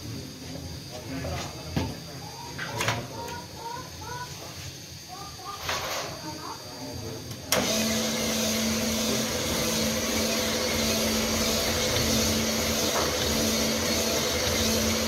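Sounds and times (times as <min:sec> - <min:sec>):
honing machine humming: 0:07.6 - 0:15.0.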